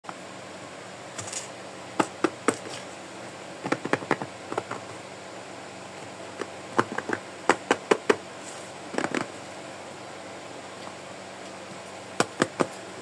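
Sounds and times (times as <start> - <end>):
fingers tapping cardboard box: 3.6 - 5.0, 6.4 - 8.2, 12.2 - 12.7.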